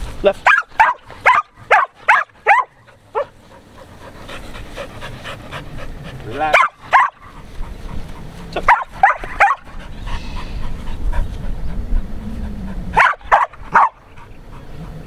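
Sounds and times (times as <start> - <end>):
dog barking in sharp yips: 0.4 - 3.3, 6.6 - 7.2, 8.7 - 9.6, 13.0 - 14.0.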